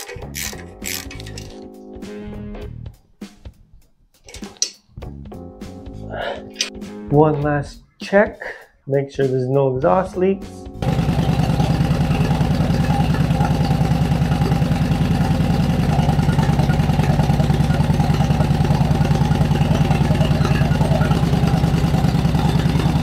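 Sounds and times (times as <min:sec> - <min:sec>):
motorcycle engine idling: 0:10.8 - 0:23.0.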